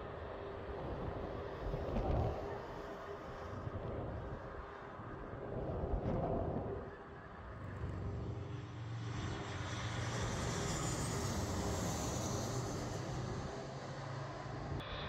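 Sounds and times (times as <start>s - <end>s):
high jet engine whine: 0.0s - 15.0s
jet airliner passing overhead: 6.9s - 15.0s.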